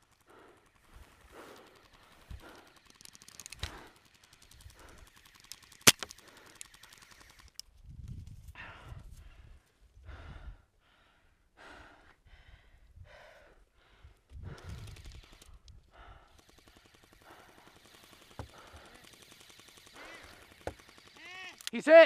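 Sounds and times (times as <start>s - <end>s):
person breathing hard: 0.2s - 3.0s, 3.6s - 5.2s, 8.5s - 20.8s
sharp click: 5.9s - 6.2s.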